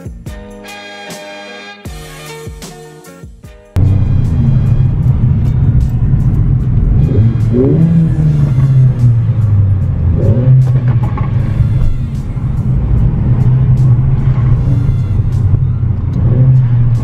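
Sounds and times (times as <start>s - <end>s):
car engine deep drone: 3.8s - 17.0s.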